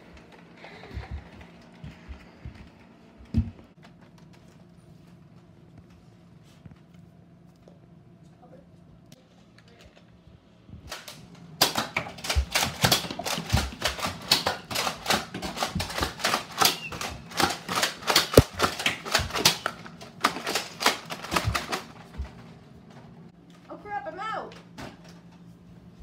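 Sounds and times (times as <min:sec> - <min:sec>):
sharp crack: 0:10.9 - 0:21.6
toy blasters clicking and snapping: 0:10.9 - 0:22.3.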